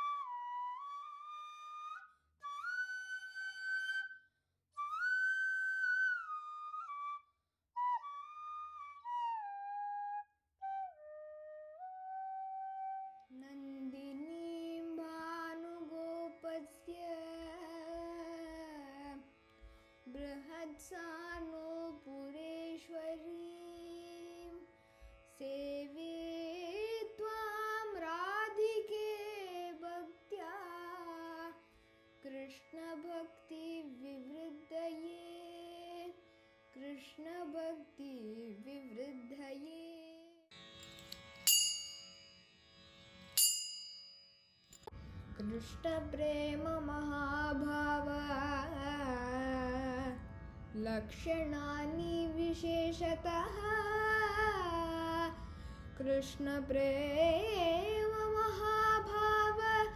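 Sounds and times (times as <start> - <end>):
solo flute melody: 0.0 - 13.4.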